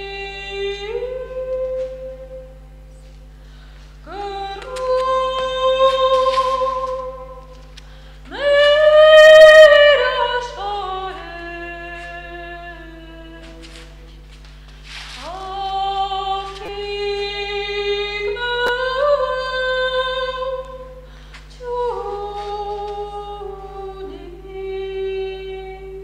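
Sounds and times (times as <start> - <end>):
low electrical hum: 0.0 - 26.0
woman singing solo: 4.0 - 7.5, 8.3 - 14.0, 21.6 - 26.0.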